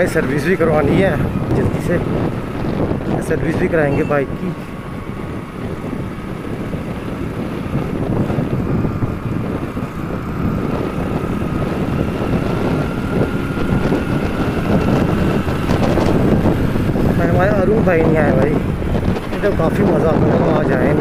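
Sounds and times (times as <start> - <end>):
motorcycle engine: 0.0 - 21.0
wind buffeting microphone: 0.0 - 21.0.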